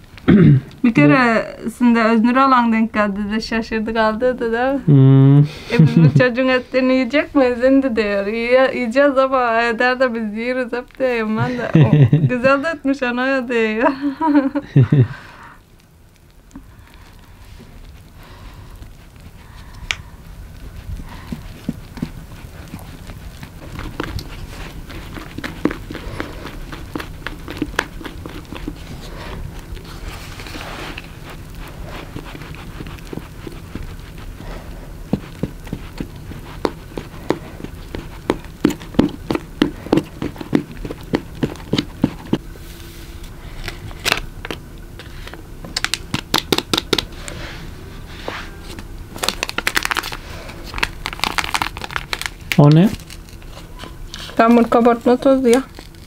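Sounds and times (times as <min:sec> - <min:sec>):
paper packet crinkling and tearing: 0:43.6 - 0:47.1, 0:48.7 - 0:56.0.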